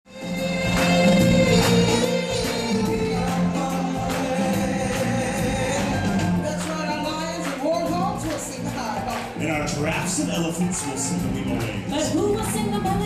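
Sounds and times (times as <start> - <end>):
rhythmic drums and percussion: 0.1 - 13.0
choir singing held notes: 0.3 - 6.4.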